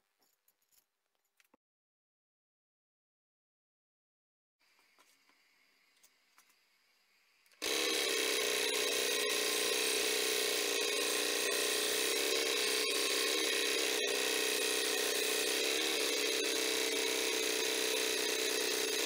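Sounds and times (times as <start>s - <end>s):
benchtop machine motor running: 7.6s - 19.0s.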